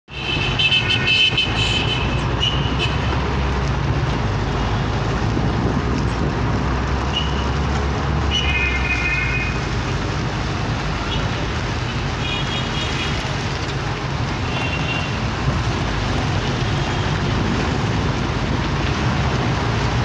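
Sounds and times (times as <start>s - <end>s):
car horns tooting: 0.1s - 3.4s, 7.0s - 9.8s, 11.9s - 13.4s, 14.4s - 15.4s
car engine and road rumble: 0.1s - 20.0s.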